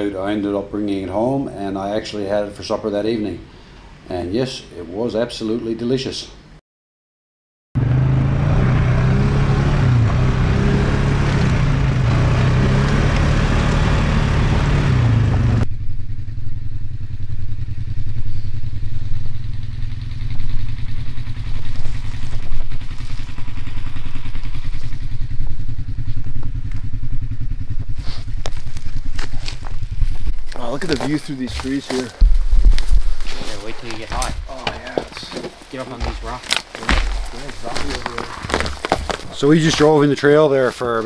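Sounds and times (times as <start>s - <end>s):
quad engine revving: 7.8s - 15.7s, 17.6s - 30.0s
uneven low rumble: 15.0s - 34.5s.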